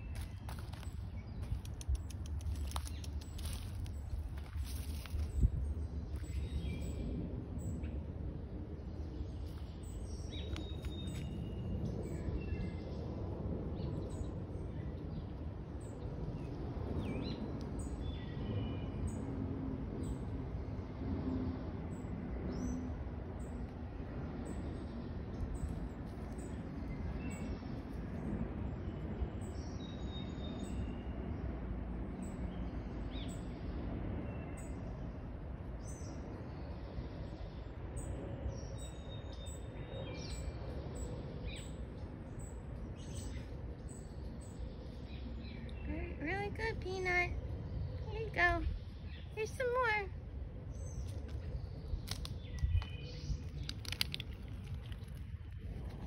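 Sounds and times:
small birds chirping: 0.0s - 7.9s, 9.0s - 12.9s, 35.8s - 56.0s
low background rumble: 0.0s - 56.0s.

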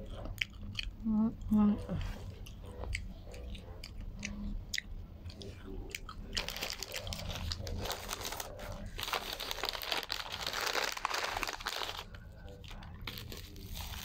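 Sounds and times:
mouth chewing food: 0.0s - 14.0s
paper and foil crinkling: 6.4s - 14.0s.

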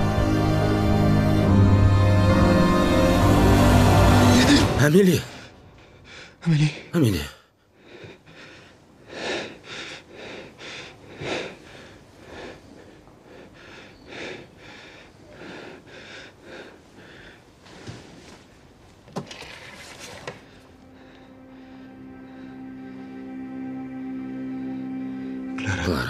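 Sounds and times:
man panting: 7.8s - 17.5s.

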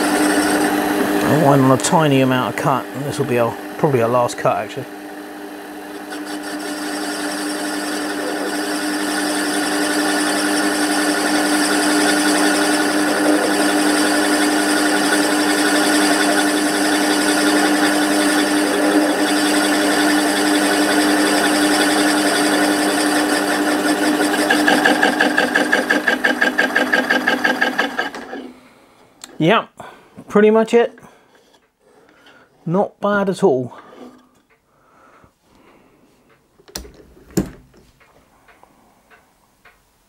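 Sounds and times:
metal lathe cutting: 0.0s - 28.5s.

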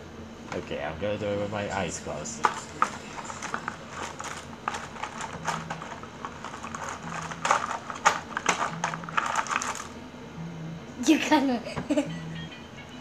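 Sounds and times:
coloring pencils clattering: 2.4s - 10.0s.

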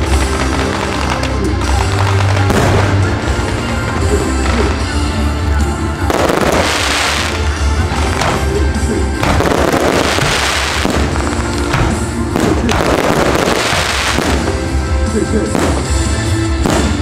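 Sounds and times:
loud music with heavy bass: 0.0s - 17.0s
firework shells bursting and fizzing: 9.2s - 14.8s.

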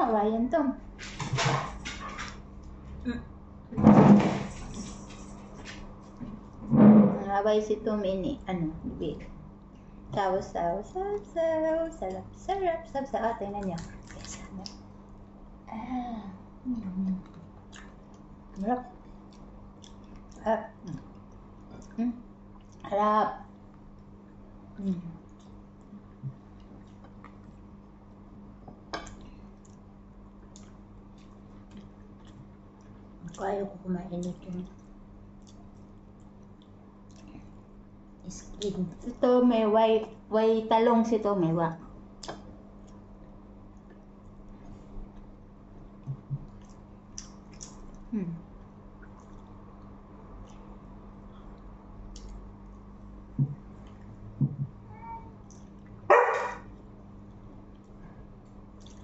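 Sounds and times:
steady low hum: 0.0s - 59.0s
soft chewing: 4.7s - 6.6s, 13.6s - 15.3s, 16.6s - 39.2s, 41.8s - 54.3s, 55.3s - 59.0s.

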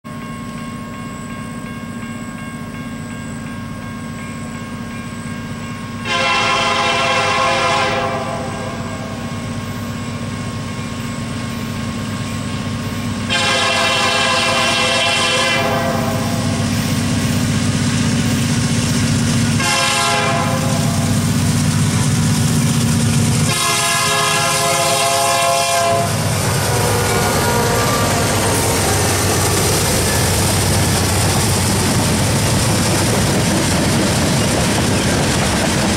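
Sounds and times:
diesel locomotive running: 0.1s - 35.9s
train air horn: 6.0s - 9.4s, 13.2s - 16.8s, 19.5s - 21.3s, 23.4s - 30.2s.

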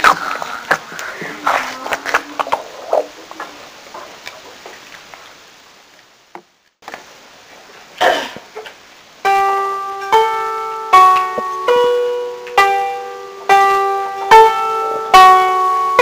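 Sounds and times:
children's voices: 0.1s - 4.0s
struck musical note ringing: 9.2s - 16.0s.

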